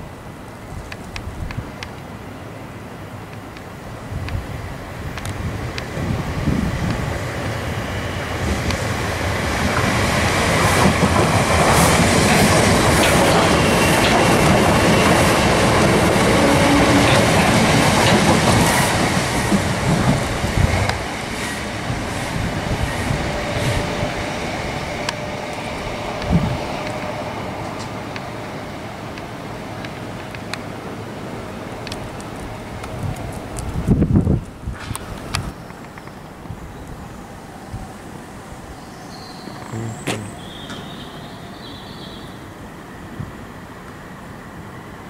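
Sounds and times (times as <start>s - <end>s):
faint steady train whine: 0.0s - 45.0s
train wheels clicking over rail joints: 9.5s - 23.8s.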